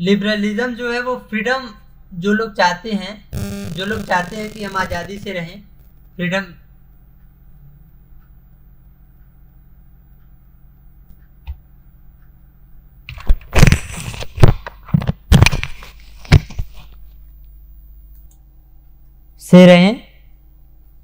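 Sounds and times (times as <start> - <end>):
faint steady hum: 0.0 - 21.0
crackles and knocks: 3.4 - 6.1.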